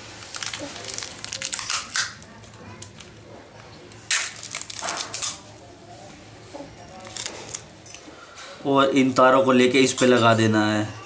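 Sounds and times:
tape and plastic wrapping rustling: 0.0 - 5.6, 6.8 - 8.5.

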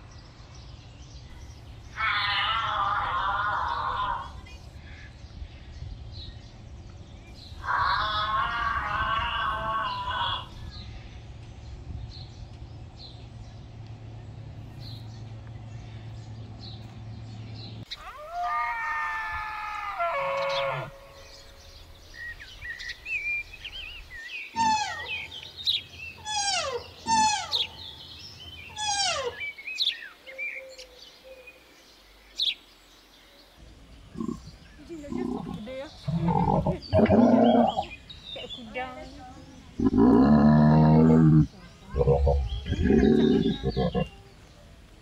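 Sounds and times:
birds chirping: 0.0 - 45.0
drawn-out pitched call: 2.0 - 4.6, 7.6 - 10.6, 17.9 - 21.8, 24.5 - 25.5, 26.2 - 28.0, 28.7 - 29.5, 39.8 - 44.3.

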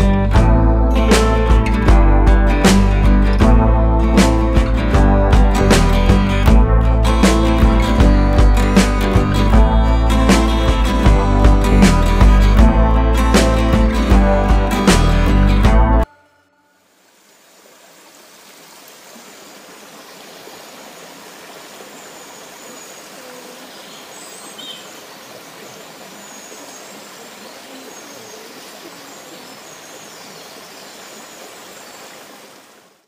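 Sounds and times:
stream trickling over rocks: 16.9 - 33.0
faint bird calls: 19.1 - 32.6.

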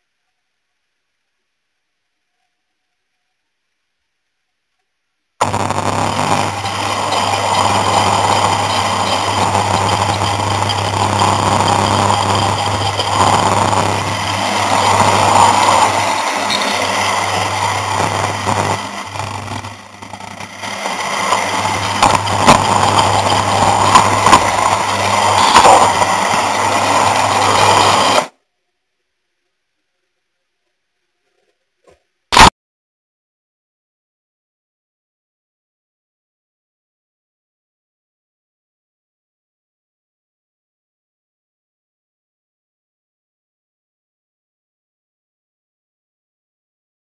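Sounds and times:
model train motor whirring: 5.4 - 28.3.

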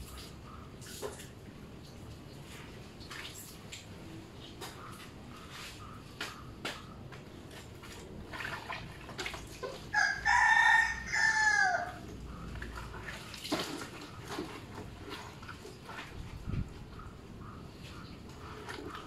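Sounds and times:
splashes: 0.0 - 4.8, 7.4 - 10.2, 12.3 - 16.4
rooster crowing: 9.9 - 12.1.

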